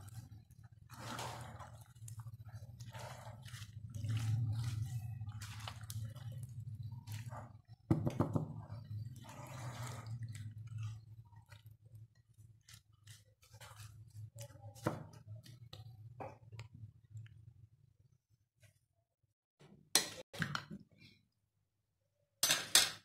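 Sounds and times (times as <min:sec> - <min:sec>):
wet squishing of fruit: 0:00.0 - 0:17.4.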